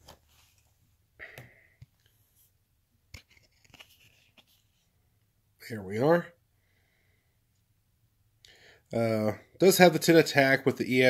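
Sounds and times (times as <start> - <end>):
card handling clicks and rustles: 3.2 - 4.8.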